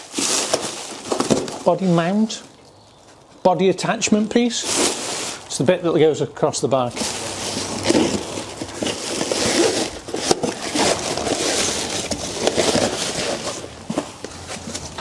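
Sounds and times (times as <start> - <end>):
packaging tearing: 0.0 - 1.8, 4.6 - 5.5, 7.0 - 14.2
packaging rustling and crinkling: 0.0 - 3.3, 4.1 - 5.8, 6.9 - 15.0.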